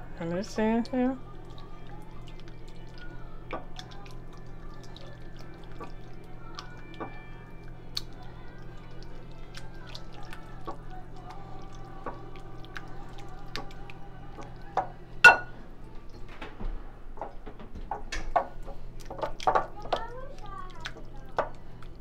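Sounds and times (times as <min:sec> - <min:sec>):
spatula mashing soft wet mixture: 0:00.3 - 0:15.5, 0:18.3 - 0:22.0
knock against glass bowl: 0:15.3 - 0:15.5.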